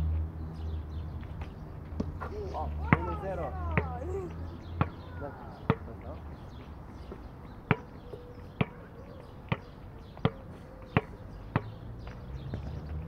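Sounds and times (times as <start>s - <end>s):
basketball bouncing: 7.7s - 8.0s, 8.6s - 8.8s, 11.0s - 12.7s.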